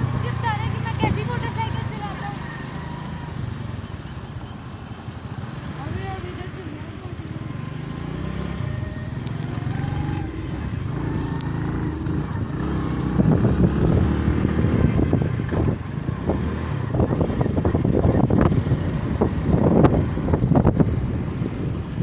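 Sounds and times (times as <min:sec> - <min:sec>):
motorcycle engine running: 0:00.0 - 0:22.0
wind buffeting microphone: 0:08.0 - 0:22.0.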